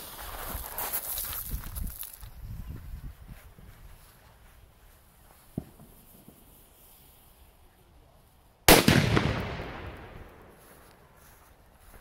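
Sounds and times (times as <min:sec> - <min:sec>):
firecracker bang with echo: 0:08.7 - 0:10.4.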